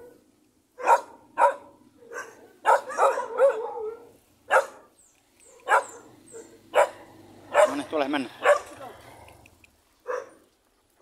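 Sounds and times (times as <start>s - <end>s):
dog barking: 0.8s - 4.9s, 5.6s - 8.9s, 10.0s - 10.4s.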